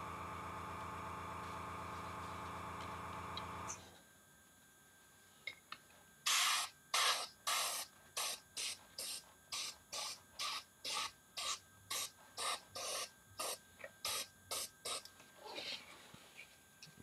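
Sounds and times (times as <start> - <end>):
airbrush spraying in bursts: 6.3 - 15.1.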